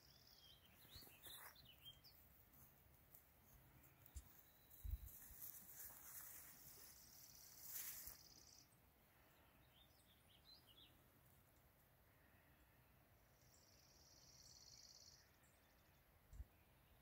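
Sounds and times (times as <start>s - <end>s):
bird chirps: 0.0s - 2.2s, 13.4s - 17.0s.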